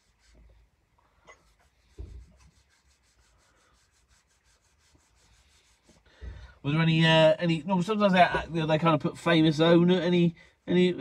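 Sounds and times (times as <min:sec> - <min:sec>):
soft low thump: 0:01.9 - 0:02.4.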